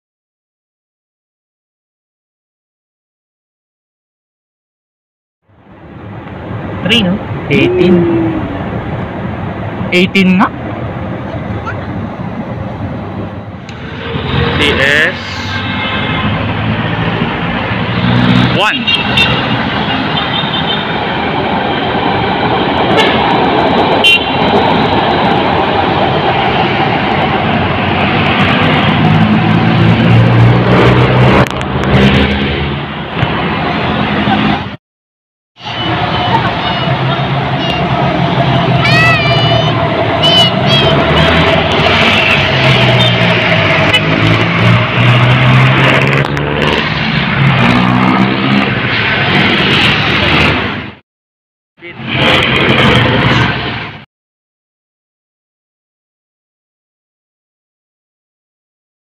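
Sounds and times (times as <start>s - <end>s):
road traffic: 5.4s - 34.8s, 35.6s - 51.0s, 51.8s - 54.1s
vehicle engines passing: 5.5s - 34.8s, 35.6s - 51.0s, 51.8s - 54.1s
train running past: 19.4s - 31.2s, 35.6s - 50.9s
train horn toot: 24.0s - 24.5s.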